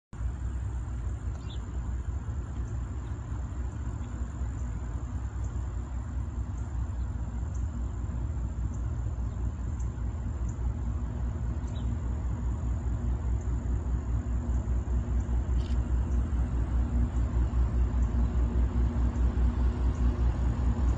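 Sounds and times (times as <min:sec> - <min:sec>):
diesel locomotive engine rumble: 0:00.0 - 0:20.9.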